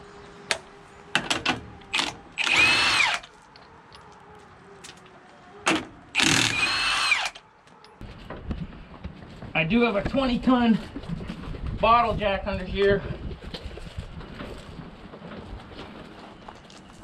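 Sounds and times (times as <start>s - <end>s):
impact wrench whining: 1.9s - 3.3s, 6.2s - 7.4s.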